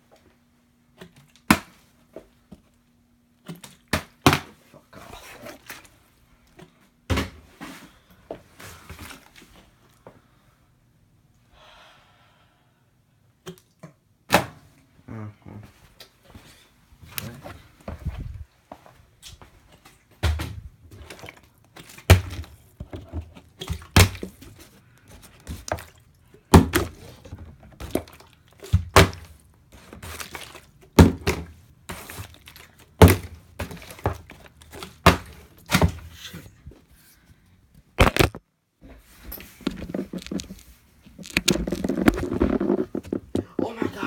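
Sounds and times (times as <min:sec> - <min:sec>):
plastic bottle landing on table: 0:38.0 - 0:38.4.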